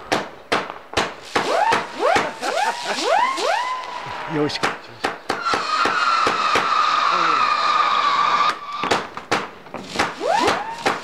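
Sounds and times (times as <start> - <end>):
firework bangs: 0.0 - 11.0
firework crackling: 0.0 - 11.0
firework whistling: 1.2 - 4.7, 5.3 - 9.1, 9.8 - 11.0.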